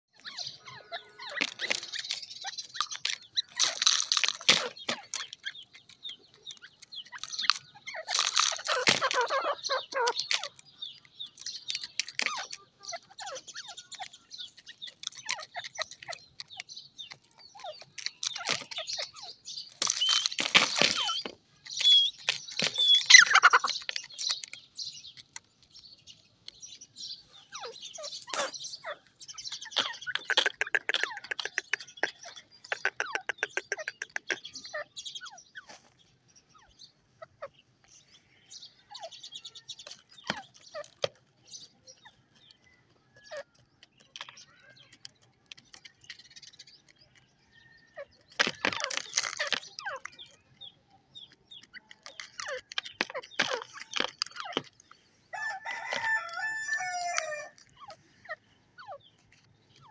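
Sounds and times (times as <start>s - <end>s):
bird high chirping calls: 0.1s - 59.9s
bird fast clicking notes: 1.2s - 25.5s, 28.2s - 34.7s.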